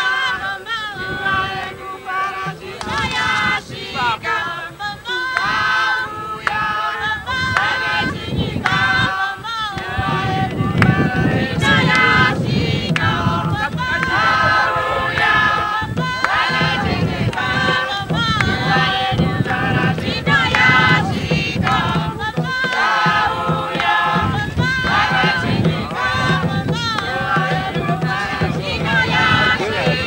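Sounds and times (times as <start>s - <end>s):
group singing and chanting: 0.0s - 30.0s
hand drum beating: 9.7s - 30.0s.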